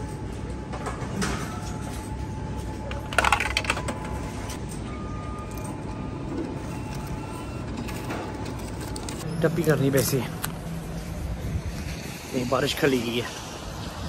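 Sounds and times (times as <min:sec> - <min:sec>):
shop background noise: 0:00.0 - 0:13.4
coins clattering through machine: 0:03.0 - 0:04.0.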